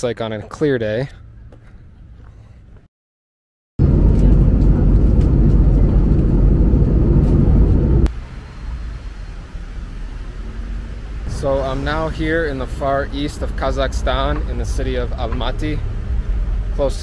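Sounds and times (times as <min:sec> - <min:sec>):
outdoor background noise: 0:00.0 - 0:02.9, 0:03.8 - 0:17.0
jet airliner cabin rumble: 0:03.8 - 0:08.1.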